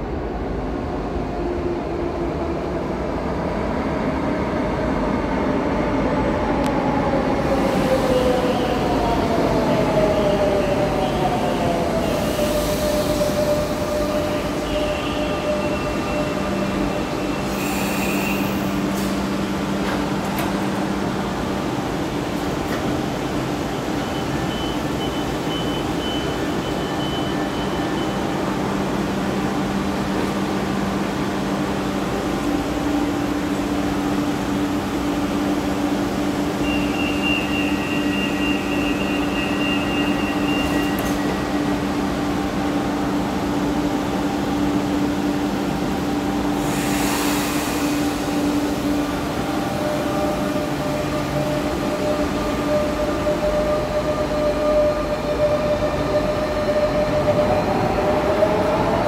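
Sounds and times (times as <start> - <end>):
electric train humming: 0.0 - 59.0
burst of hiss: 46.6 - 48.5.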